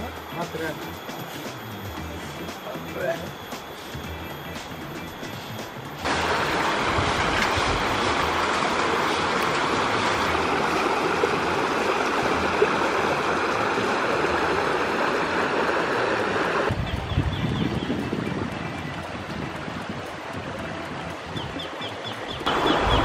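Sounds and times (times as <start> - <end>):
stream rushing over stones: 5.3 - 16.7, 22.4 - 23.0.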